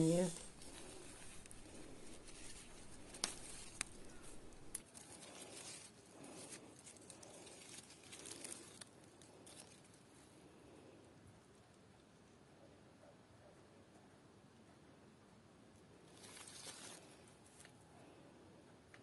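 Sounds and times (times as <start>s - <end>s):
faint rustling: 0.0s - 11.0s, 16.0s - 18.3s.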